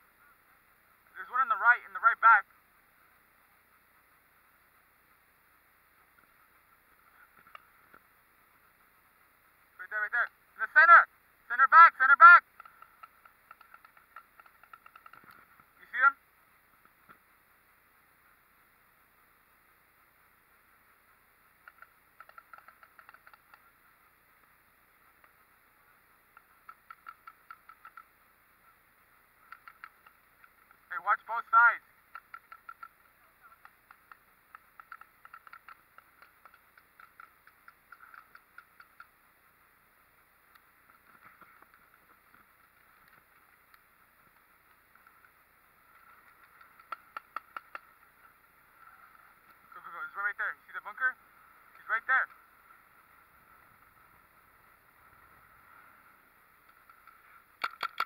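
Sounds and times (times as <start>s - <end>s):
faint outdoor hiss: 0.0s - 58.0s
distant paintball markers popping: 12.5s - 15.7s, 21.6s - 23.8s, 26.3s - 28.3s, 29.4s - 30.8s, 32.0s - 39.3s, 40.5s - 48.4s, 56.6s - 58.0s
paintball marker shots: 46.3s - 48.0s, 56.8s - 58.0s.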